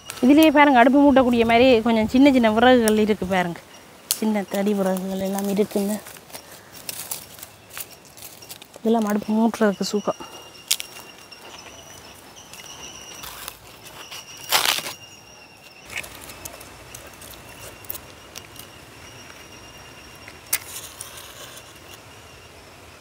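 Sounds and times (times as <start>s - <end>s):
insects whining: 0.0s - 23.0s
twigs breaking: 4.1s - 9.2s.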